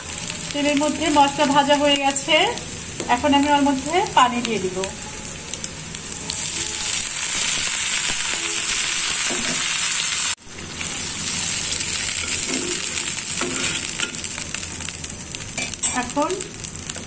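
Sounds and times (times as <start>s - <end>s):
loud sizzle in hot oil: 0.0s - 17.0s.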